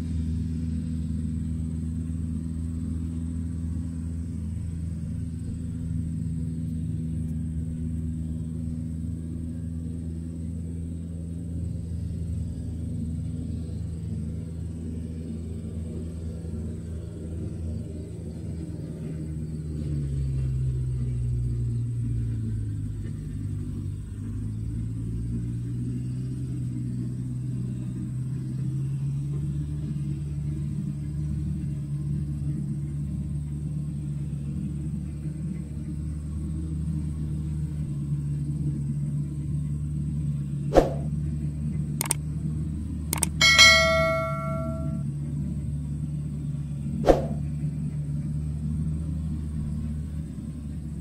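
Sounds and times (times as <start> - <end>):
diesel engine running: 0.0 - 51.0
sharp clicks: 42.0 - 42.2, 43.2 - 45.0
bell-like ding: 43.2 - 45.0.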